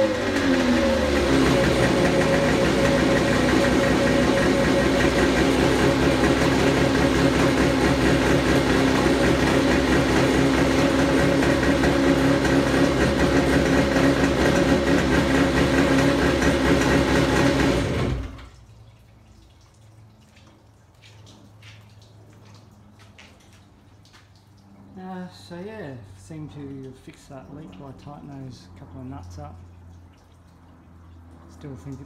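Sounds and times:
two-stroke engine idling: 0.0 - 18.4
water dripping: 18.4 - 32.0.

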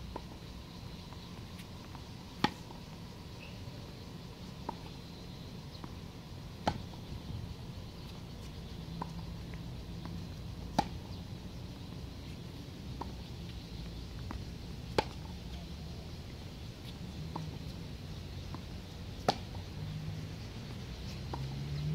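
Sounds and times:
tennis ball struck by rackets: 1.9 - 2.7, 6.6 - 6.9, 10.6 - 11.2, 14.3 - 15.3, 18.5 - 19.6.

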